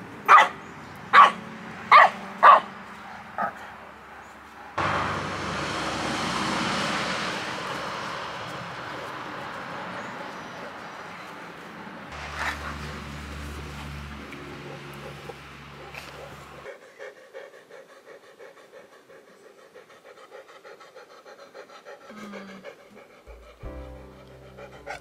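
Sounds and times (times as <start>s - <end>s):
dog barking: 0.2s - 2.8s, 3.4s - 3.6s, 14.6s - 16.7s
low hum: 1.4s - 8.0s.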